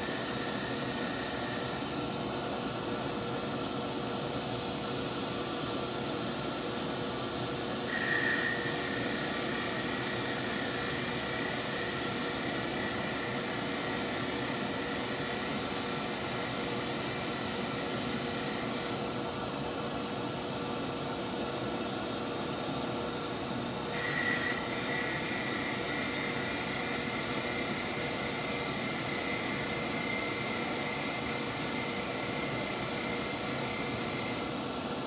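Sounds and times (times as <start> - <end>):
shop vacuum running: 0.0 - 35.0
lathe motor running: 7.9 - 19.2, 23.9 - 34.5.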